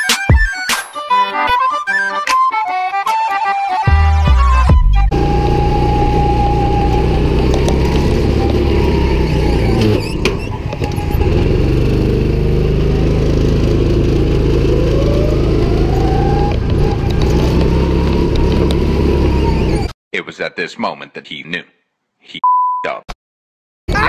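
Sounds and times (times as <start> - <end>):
go-kart engine running: 5.1 - 19.9.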